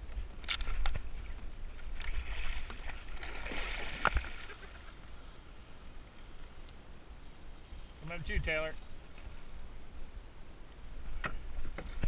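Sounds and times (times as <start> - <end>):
water splashing and churning: 1.7 - 6.1.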